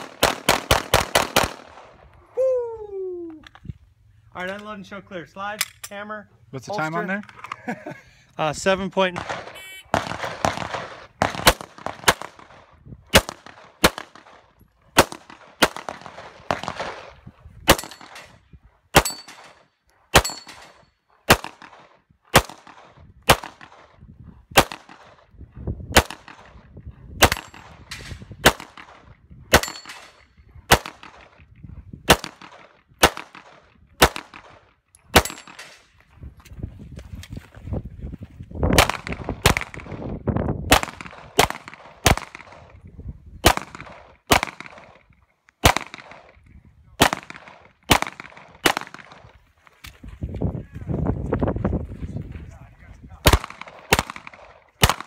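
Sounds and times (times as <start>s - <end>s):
handgun shots with echo: 27.2s - 31.4s, 32.1s - 35.8s, 53.2s - 55.0s.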